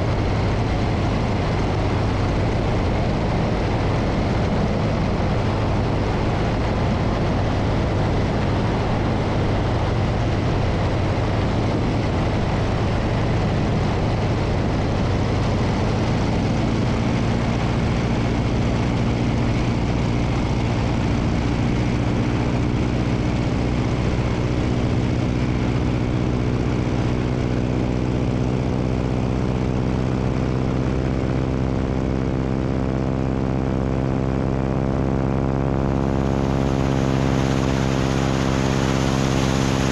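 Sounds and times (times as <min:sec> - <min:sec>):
propeller plane engine drone: 0:00.0 - 0:39.9
wind rushing over microphone: 0:00.0 - 0:39.9.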